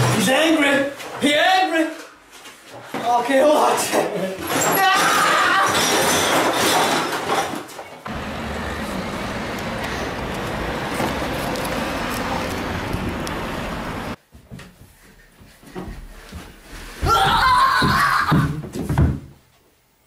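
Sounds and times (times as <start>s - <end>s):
road traffic: 8.1s - 14.2s.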